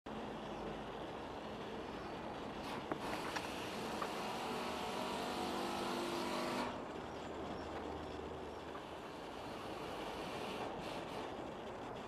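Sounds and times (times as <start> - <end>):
motor humming: 0.1 - 12.0.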